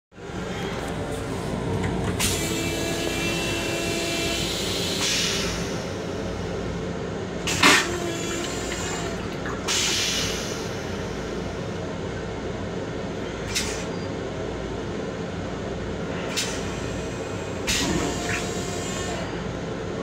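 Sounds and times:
low rumble of train: 0:00.1 - 0:20.0
toilet flush hissing rush: 0:02.2 - 0:06.7, 0:07.4 - 0:11.8, 0:16.3 - 0:19.5.

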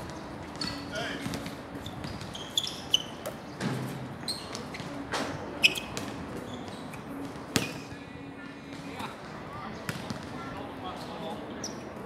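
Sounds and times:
short high squeaks: 0:01.8 - 0:03.2, 0:05.6 - 0:07.0
basketball bouncing: 0:09.9 - 0:10.3.

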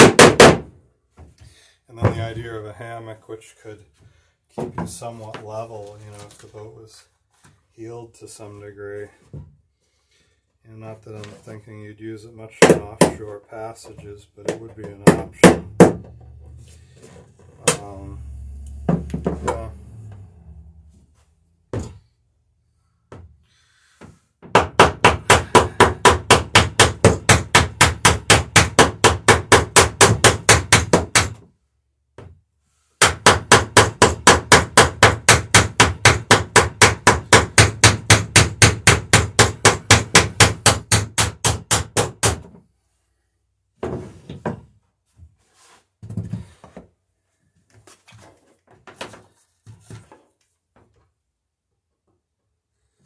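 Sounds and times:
tools knocking: 0:18.8 - 0:19.6.

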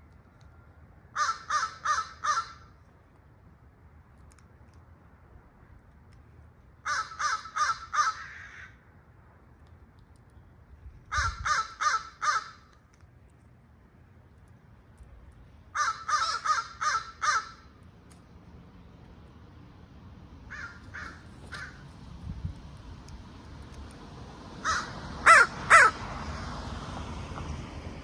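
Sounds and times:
crow cawing: 0:01.2 - 0:02.6, 0:06.9 - 0:08.8, 0:11.1 - 0:12.6, 0:15.8 - 0:17.7, 0:20.5 - 0:21.8, 0:24.6 - 0:26.0.

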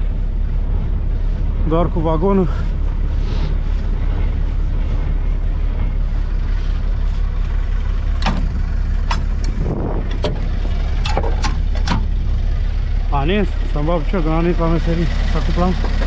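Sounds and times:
truck engine idling: 0:00.0 - 0:16.0
metal clanks: 0:08.1 - 0:12.4.

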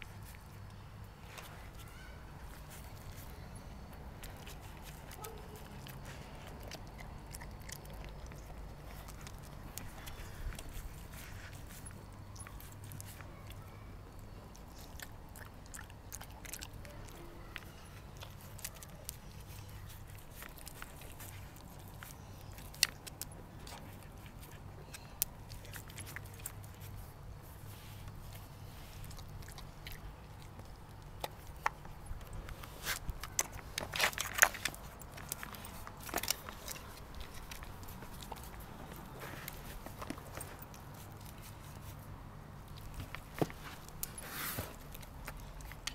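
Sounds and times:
dog licking and chewing: 0:01.2 - 0:45.9.

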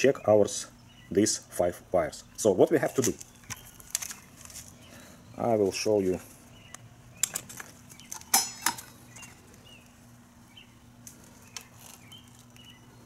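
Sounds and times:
multimeter handling clicks and clatter: 0:07.2 - 0:09.0.

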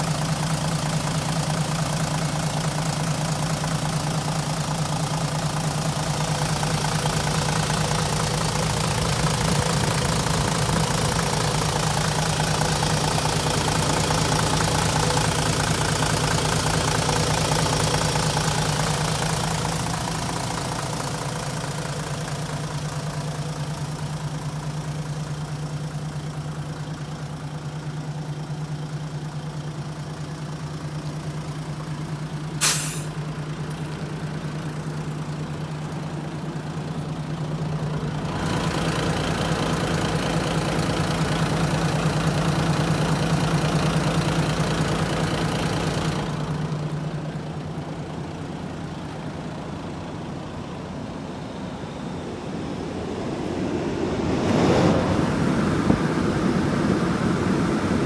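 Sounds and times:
diesel engine idling: 0:00.0 - 0:53.7
short sharp noise: 0:32.6 - 0:33.2.

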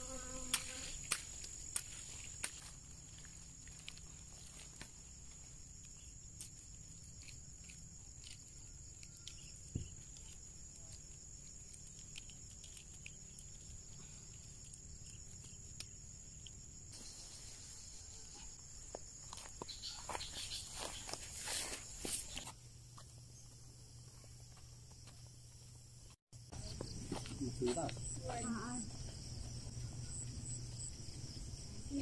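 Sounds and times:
high-pitched insect trill: 0:00.0 - 0:32.0
leaves and stems rustling: 0:00.5 - 0:13.5, 0:19.4 - 0:22.6.

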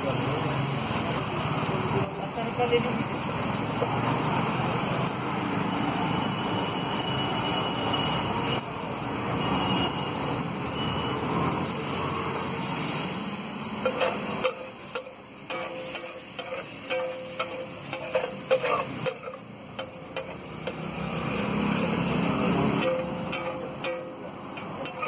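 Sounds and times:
butter sizzling on griddle: 0:11.6 - 0:25.0.

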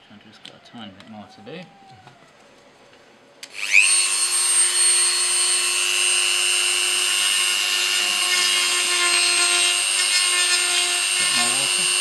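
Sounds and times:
rotary tool high whine: 0:03.4 - 0:12.0.

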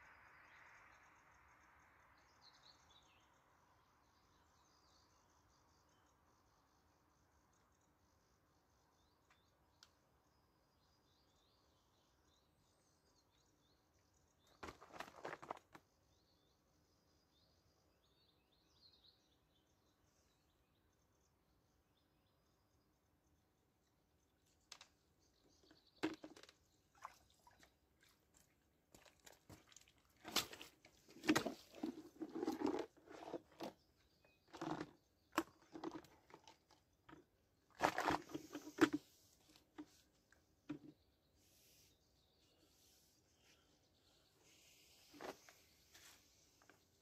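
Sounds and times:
crunching and rustling: 0:14.6 - 0:15.8, 0:28.9 - 0:33.8.

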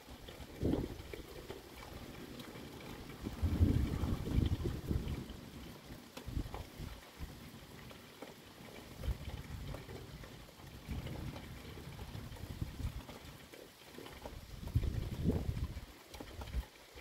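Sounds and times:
faint ticks: 0:00.1 - 0:17.0
thunder rumble: 0:02.4 - 0:07.9, 0:08.9 - 0:13.3, 0:14.6 - 0:15.8.

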